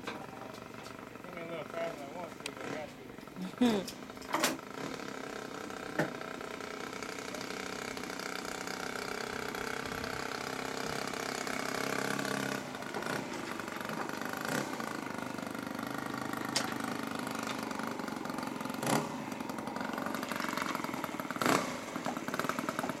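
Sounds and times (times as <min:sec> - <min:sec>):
model plane engine running: 0:00.2 - 0:23.0.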